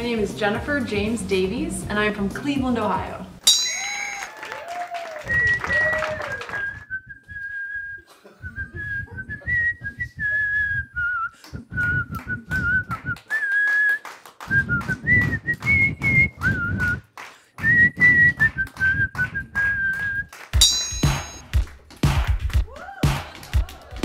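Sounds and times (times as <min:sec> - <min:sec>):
woman whistling a tune: 0:05.2 - 0:20.4.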